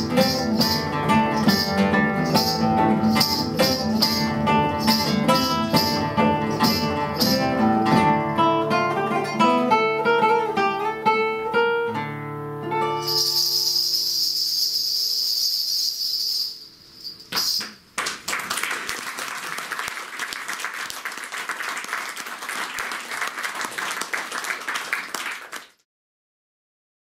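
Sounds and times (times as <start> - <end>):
high steady shimmer: 13.0 - 17.6
audience applauding: 18.0 - 25.8.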